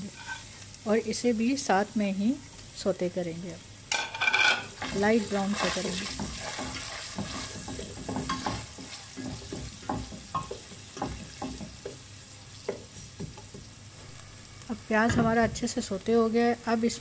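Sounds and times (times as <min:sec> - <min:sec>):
onion sizzling in hot oil: 0:00.0 - 0:17.0
wooden spoon scraping pot: 0:04.1 - 0:12.0.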